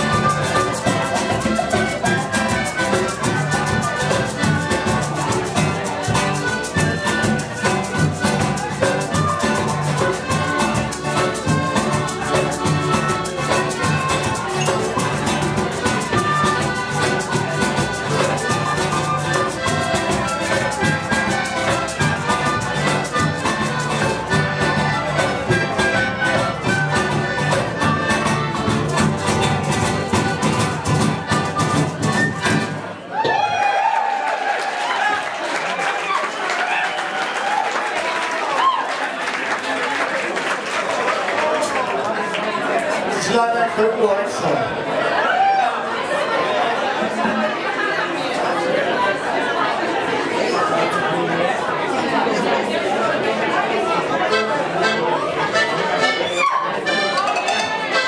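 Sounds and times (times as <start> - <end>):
latin percussion beat: 0.0 - 32.9, 55.5 - 58.0
violin melody: 0.0 - 32.9, 54.2 - 58.0
clarinet-like wind instrument: 0.0 - 33.1, 54.2 - 58.0.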